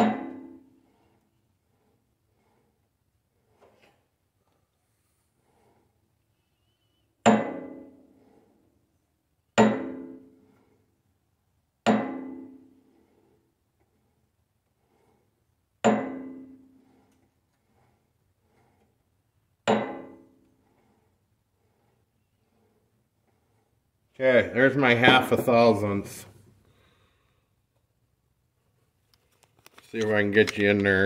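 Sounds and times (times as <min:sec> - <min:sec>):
metallic taps on metal: 0:09.6 - 0:10.2, 0:11.9 - 0:12.6, 0:15.8 - 0:16.6, 0:19.7 - 0:20.5.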